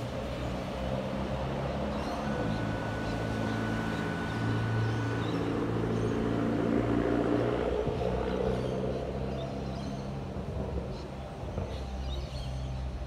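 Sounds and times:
train low mechanical hum: 0.0s - 7.0s.

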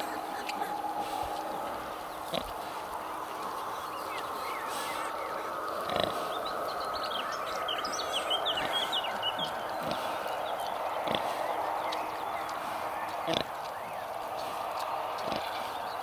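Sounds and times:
sow grunting: 0.0s - 16.0s
steady background hiss: 0.0s - 16.0s.

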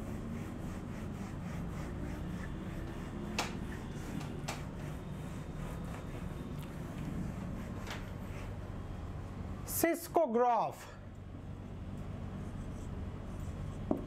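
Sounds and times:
eraser rubbing on whiteboard: 0.0s - 8.7s, 12.3s - 14.0s.

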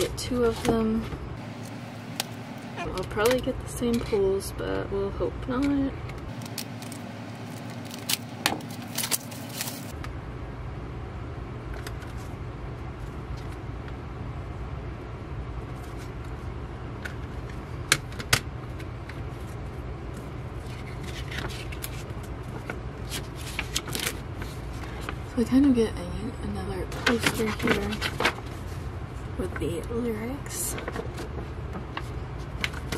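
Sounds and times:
steady low hum: 0.0s - 32.9s
paper rustling: 6.3s - 9.9s, 18.7s - 25.3s, 26.9s - 28.8s, 30.7s - 32.9s
shrink wrap crackling: 6.3s - 10.0s.

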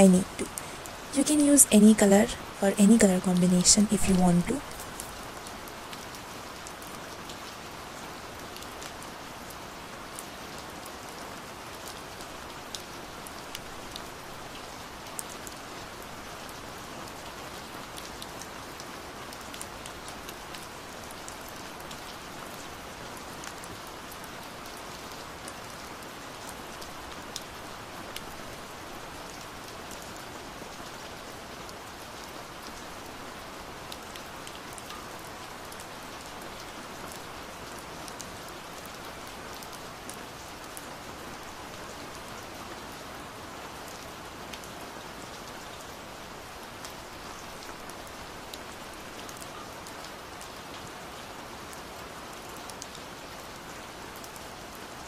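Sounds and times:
steady rain falling: 0.0s - 55.0s
rain drop ticks: 0.1s - 5.2s.

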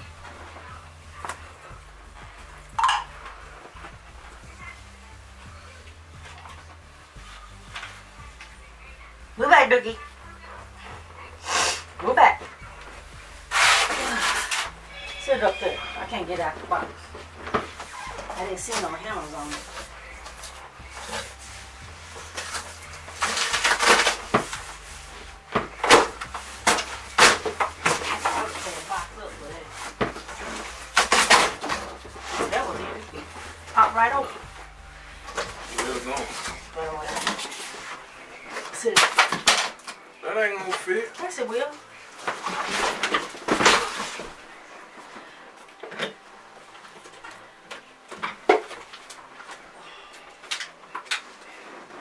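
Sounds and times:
cardboard box rustling and scraping: 13.4s - 34.4s.

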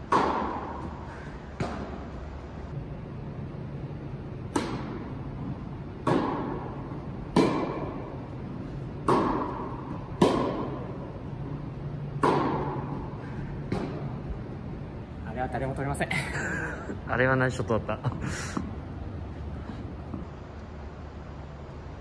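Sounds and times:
tennis ball hit by rackets: 0.0s - 1.0s, 1.6s - 2.1s, 4.5s - 5.2s, 6.0s - 8.2s, 9.0s - 11.2s, 12.2s - 13.1s, 13.7s - 14.2s.

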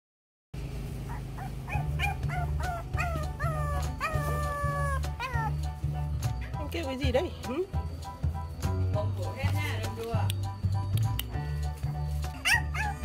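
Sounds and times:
puppies howling: 1.1s - 5.7s, 12.4s - 13.0s.

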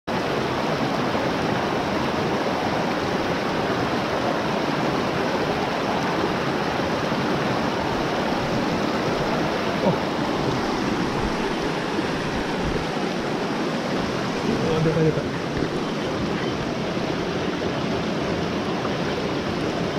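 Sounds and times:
stream rushing over rocks: 0.1s - 19.9s.

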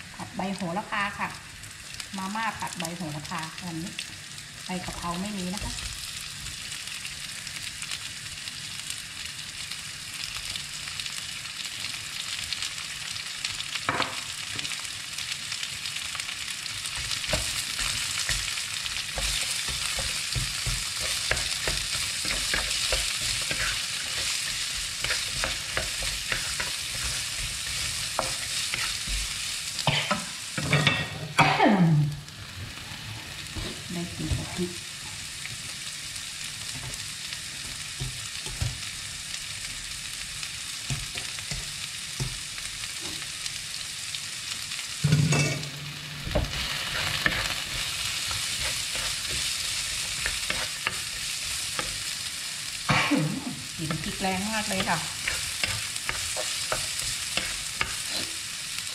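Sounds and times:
food sizzling in oil: 0.0s - 58.9s
utensil scraping a pan: 19.1s - 31.2s, 54.7s - 58.4s.

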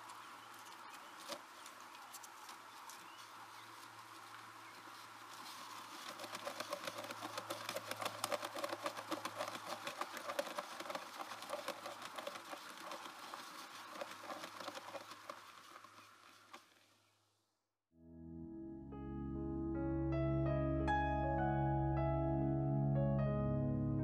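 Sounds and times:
wood chips crackling and scratching: 0.0s - 17.0s.

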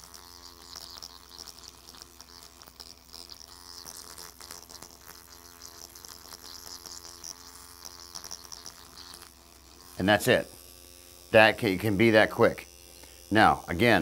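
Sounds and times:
faint irregular ticks: 0.0s - 14.0s
microneedling pen buzzing: 0.0s - 14.0s.

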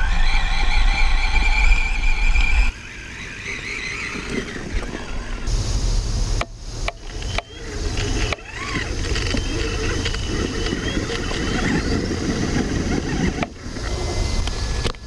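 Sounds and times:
electric motor whine: 0.0s - 15.0s
steady low rumble: 4.6s - 15.0s
tyres crunching over dirt: 7.0s - 15.0s.

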